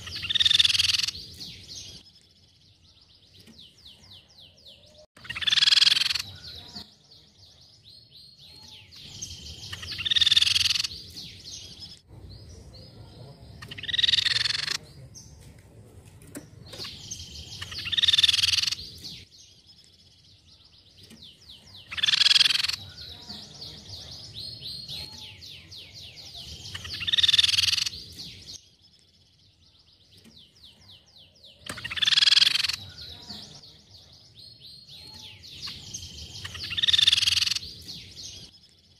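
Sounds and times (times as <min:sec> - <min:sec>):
bird calling loudly: 0:00.0 - 0:01.2, 0:05.2 - 0:06.8, 0:08.6 - 0:11.0, 0:13.6 - 0:14.8, 0:16.8 - 0:18.9, 0:21.8 - 0:23.3, 0:26.3 - 0:28.0, 0:31.6 - 0:33.6, 0:35.0 - 0:37.8.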